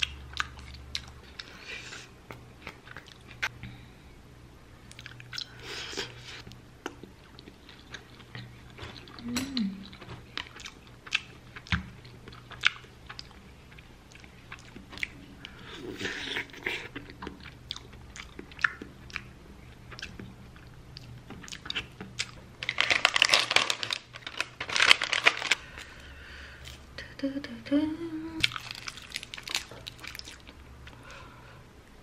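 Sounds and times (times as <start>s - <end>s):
chewing: 4.9s - 22.4s, 28.4s - 31.0s
person humming: 9.2s - 9.8s, 27.0s - 28.4s
seaweed crackling: 22.6s - 25.7s, 28.5s - 30.5s
plastic packet crackling: 22.6s - 25.8s, 28.5s - 30.4s.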